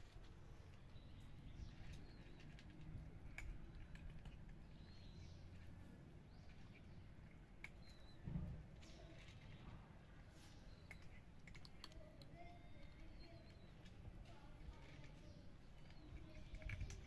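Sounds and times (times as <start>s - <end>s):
faint high bird chirps: 6.3s - 11.2s, 12.2s - 17.0s.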